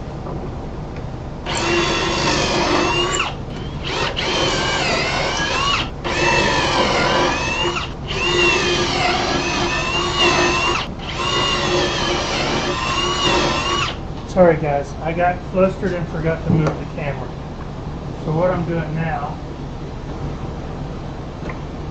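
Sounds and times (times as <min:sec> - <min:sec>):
cordless drill driving screws: 0:01.5 - 0:14.0.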